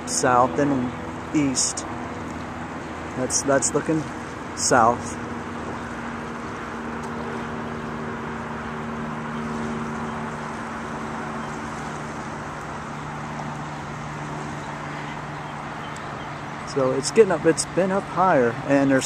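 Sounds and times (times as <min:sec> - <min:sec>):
faint outdoor hiss: 0:00.0 - 0:07.4
engine droning: 0:00.0 - 0:19.0.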